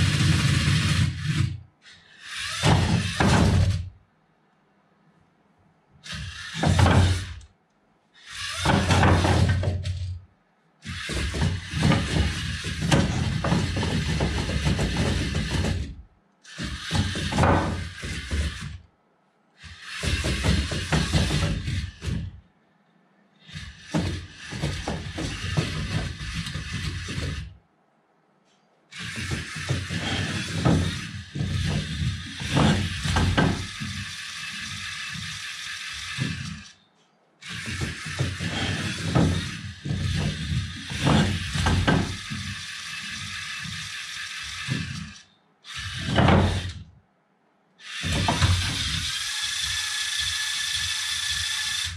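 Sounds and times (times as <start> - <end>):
electric motors and gears whirring: 0.0 - 4.0, 6.0 - 18.9, 19.6 - 22.4, 23.4 - 27.6, 28.5 - 47.0, 47.8 - 51.9
wheels knocking on wooden planks: 6.5 - 7.4, 8.5 - 10.1, 10.9 - 16.0, 16.6 - 18.8, 19.7 - 22.4, 23.8 - 27.6, 29.0 - 35.4, 37.5 - 43.8, 46.0 - 46.9, 48.0 - 49.2.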